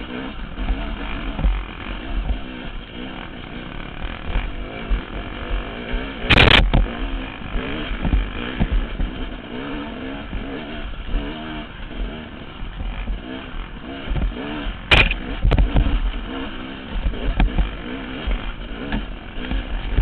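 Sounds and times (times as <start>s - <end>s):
dirt bike engine revving: 0.0s - 20.0s
loud burst of noise: 6.2s - 6.8s.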